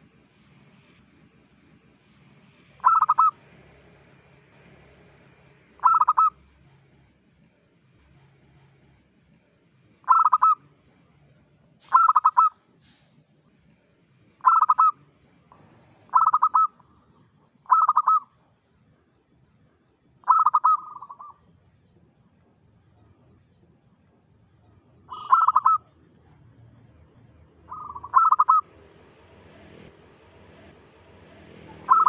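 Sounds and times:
dove cooing: 2.8 - 3.4, 5.8 - 6.4, 10.0 - 10.8, 11.9 - 12.6, 14.4 - 15.0, 16.0 - 18.3, 20.2 - 21.4, 25.1 - 25.9, 27.6 - 28.7, 31.6 - 32.0.

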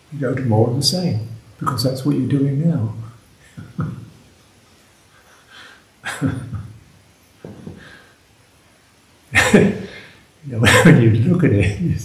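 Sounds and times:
man chuckling: 3.4 - 4.3, 5.5 - 6.8, 9.4 - 10.0.

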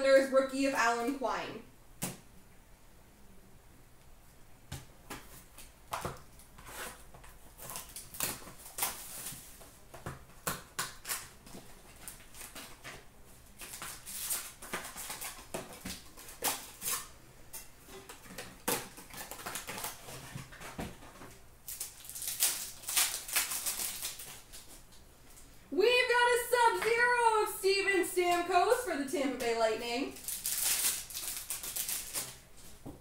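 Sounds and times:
foil wrappers tearing and crinkling: 6.5 - 9.6, 10.6 - 17.1, 18.1 - 20.8, 21.6 - 24.9, 30.2 - 32.5.

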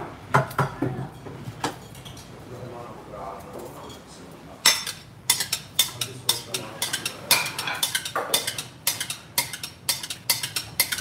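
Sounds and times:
metal ladle clinking against pot: 4.7 - 11.0.

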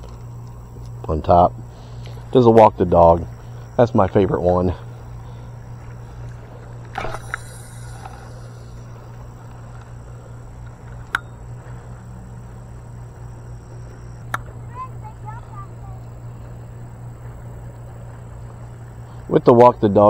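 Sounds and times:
low steady hum: 0.0 - 20.0
sharp clicks: 14.2 - 14.6.

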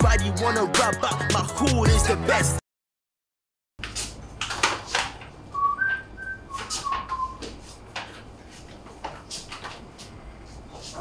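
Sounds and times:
person whistling: 5.6 - 7.5.

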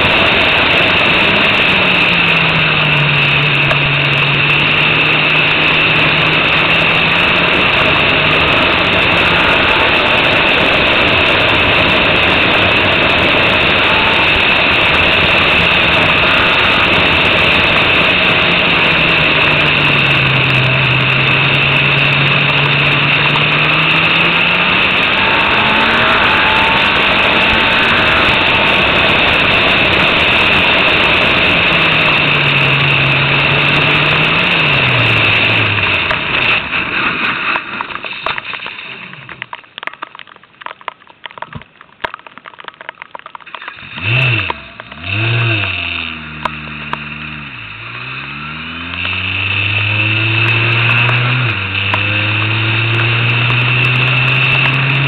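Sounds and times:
rushing wind noise: 0.0 - 38.0
racing car engine at speed: 0.0 - 38.5, 43.6 - 55.0.

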